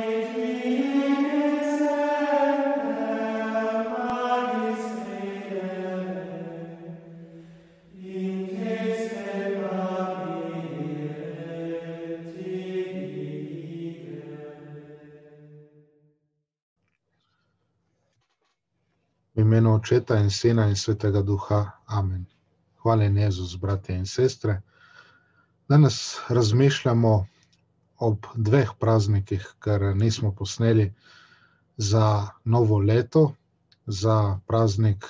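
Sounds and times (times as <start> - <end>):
person singing plainchant: 0.0 - 14.8.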